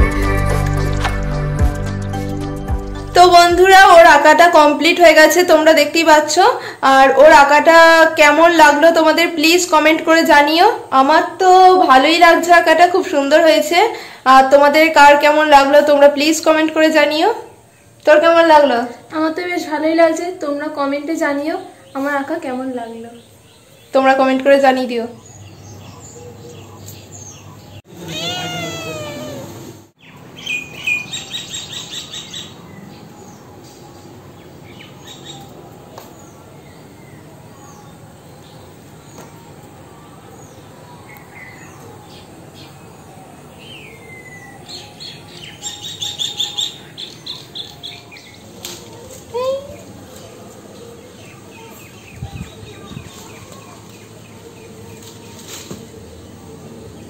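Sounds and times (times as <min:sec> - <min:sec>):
bird chirping: 0:25.1 - 0:35.5
rapid falling chirps: 0:28.0 - 0:29.5
cat meowing: 0:28.0 - 0:29.7.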